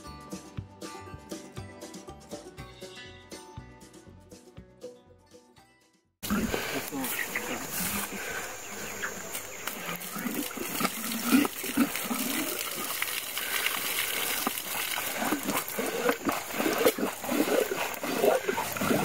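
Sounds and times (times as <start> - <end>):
water splashing and trickling: 6.2 - 19.0.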